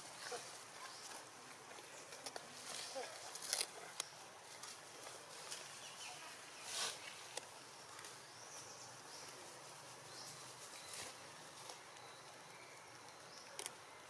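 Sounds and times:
background hiss: 0.0 - 14.0
faint high chirps: 10.2 - 13.8.

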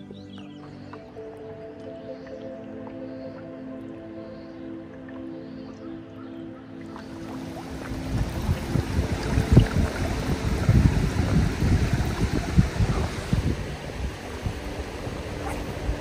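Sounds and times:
water lapping over gravel: 6.8 - 16.0
low splashes and knocks: 7.2 - 13.6.

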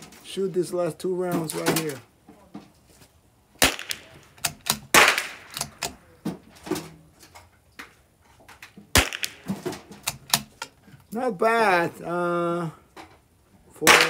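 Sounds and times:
rifle gunshots: 3.6 - 5.9, 8.9 - 10.5
light rifle clicks: 3.7 - 6.0, 9.0 - 10.8.

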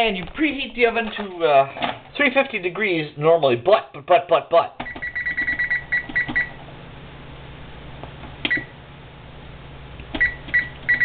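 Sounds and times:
steady low hum: 0.0 - 11.0
oven control panel beeping: 4.8 - 6.6, 8.4 - 8.8, 10.1 - 11.0.

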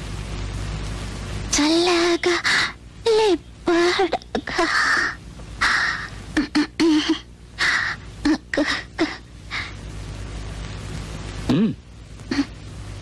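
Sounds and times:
person sobbing: 11.5 - 12.6.

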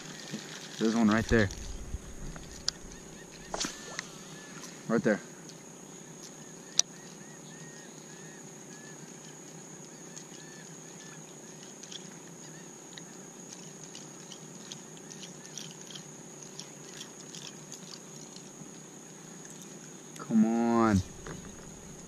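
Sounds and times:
steady high hiss: 0.0 - 11.3, 18.6 - 22.0.

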